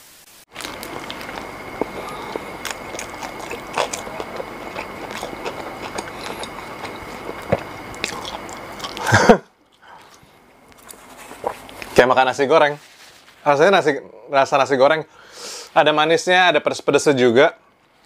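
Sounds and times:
faint high hum: 0.0s - 18.0s
steady hiss: 0.0s - 18.0s
person chewing food: 0.5s - 12.0s
mouth clicks and crunches: 0.5s - 12.1s.

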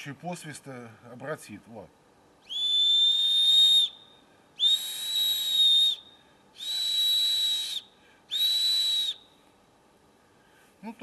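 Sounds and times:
whistle blasts: 2.4s - 9.4s.

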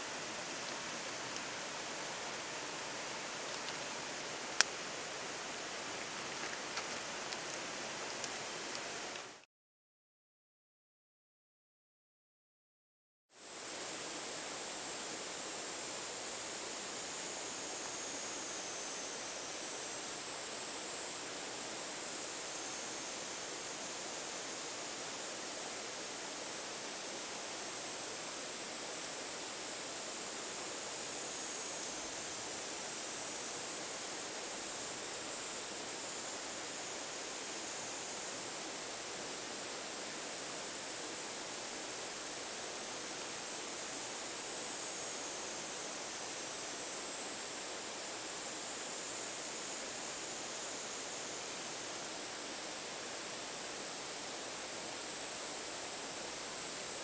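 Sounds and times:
wood fire crackling: 2.8s - 3.9s.

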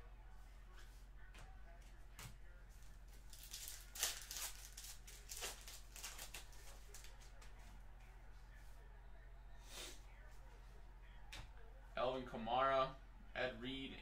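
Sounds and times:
faint low hum: 0.0s - 14.0s
cards rustling: 3.1s - 7.6s
foil pack tearing and crinkling: 3.3s - 7.2s.

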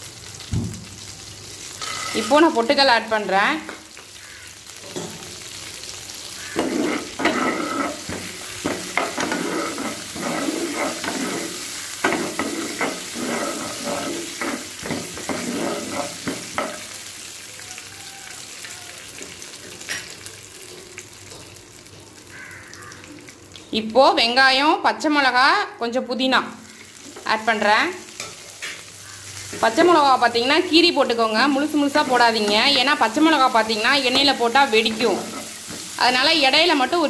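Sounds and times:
oil sizzling: 0.0s - 37.0s
spatula scraping a pan: 6.4s - 16.9s, 31.7s - 36.0s.

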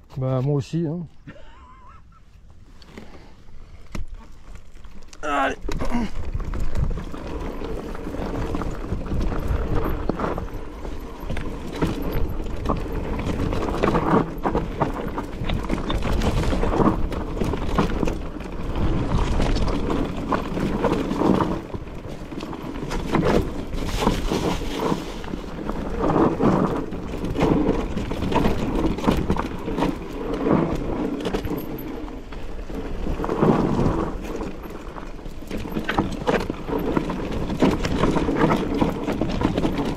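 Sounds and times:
mountain bike rumbling on trail: 0.0s - 39.9s
bike knocks and rattles: 3.8s - 39.9s.

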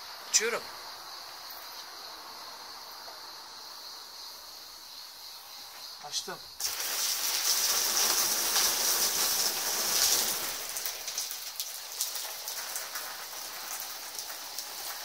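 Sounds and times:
water spraying from a hose: 6.6s - 15.0s.

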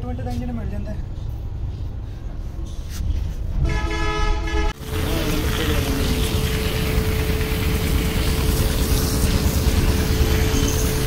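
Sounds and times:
vehicle horn: 3.6s - 6.1s
steady hum: 4.7s - 11.0s
water spraying from hose: 4.8s - 11.0s.

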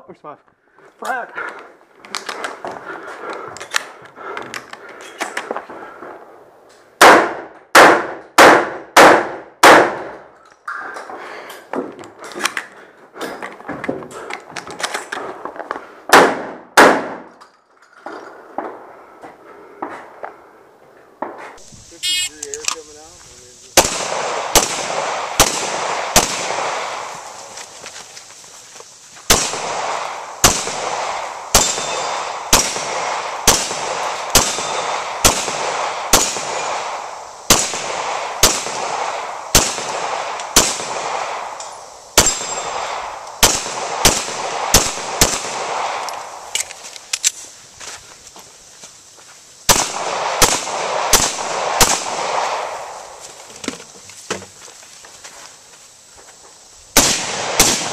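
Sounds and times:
handgun shots with echo: 7.0s - 10.1s, 16.1s - 17.3s, 29.3s - 41.4s, 57.0s - 57.9s.

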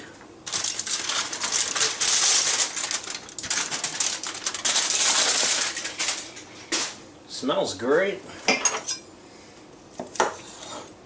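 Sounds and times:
aluminium foil crinkling: 0.4s - 6.5s.

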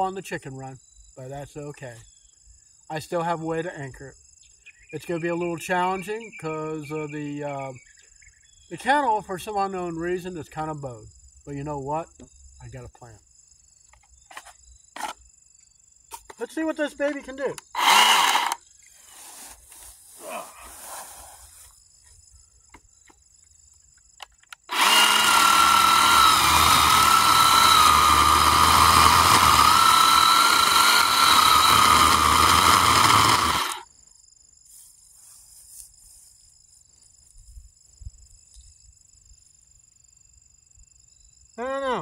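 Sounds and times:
electric chainsaw cutting wood: 17.7s - 18.6s, 24.6s - 33.8s.

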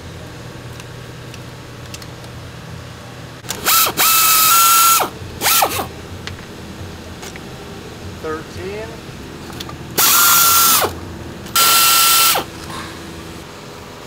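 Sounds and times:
electric ratchet motor whining: 3.5s - 5.9s, 10.0s - 12.6s.

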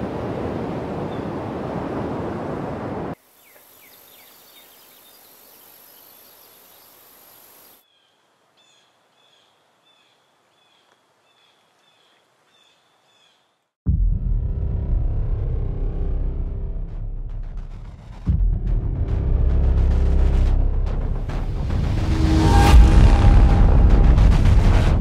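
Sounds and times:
high insect buzz: 3.2s - 7.8s
bird chirps: 3.4s - 13.5s
small bird calling: 3.4s - 13.5s.

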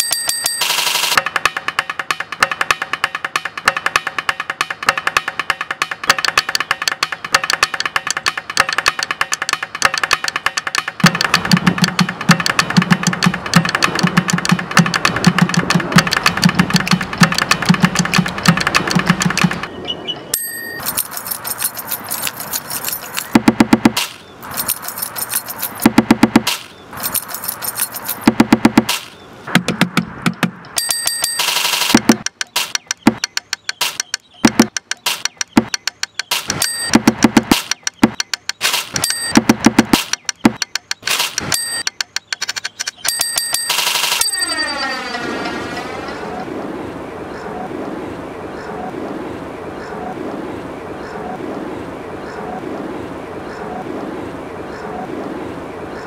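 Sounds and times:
bells ringing: 0.0s - 1.2s, 20.3s - 23.4s, 24.4s - 25.9s, 27.0s - 28.3s, 30.7s - 31.9s, 36.5s - 37.0s, 39.0s - 39.4s, 41.4s - 41.9s, 43.0s - 46.4s
low drum beat: 1.2s - 19.6s, 23.3s - 24.0s, 25.8s - 26.6s, 28.2s - 30.8s, 31.9s - 33.3s, 33.9s - 35.9s, 36.5s - 38.2s, 39.0s - 40.7s
coins rattling in a plastic jar: 20.6s - 23.4s, 24.0s - 25.9s, 26.5s - 28.3s
jangling keys: 20.6s - 23.4s, 24.4s - 25.9s, 27.0s - 28.3s.

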